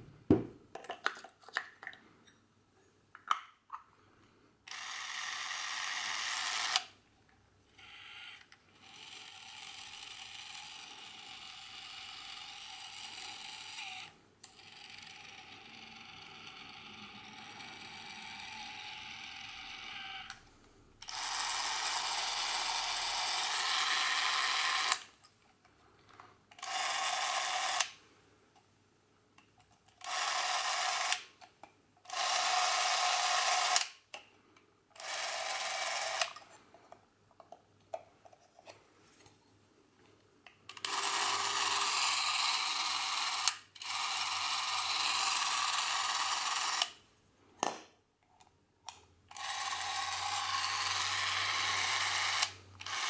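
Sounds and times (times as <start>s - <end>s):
movie camera motor whirring: 4.7s - 6.9s, 7.7s - 20.4s, 21.0s - 25.1s, 26.6s - 28.0s, 30.0s - 31.3s, 32.1s - 33.9s, 35.0s - 36.4s, 40.7s - 47.0s, 49.3s - 53.0s.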